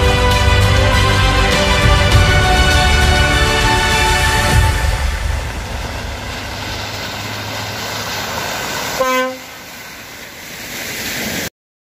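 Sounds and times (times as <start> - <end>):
truck engine running: 0.0 - 10.4
truck horn blast: 9.0 - 9.7.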